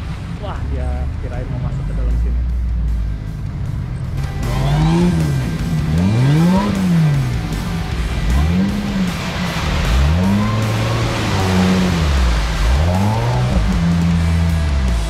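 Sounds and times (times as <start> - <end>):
engine revving: 0.0 - 15.0
tyres churning through mud: 3.3 - 15.0.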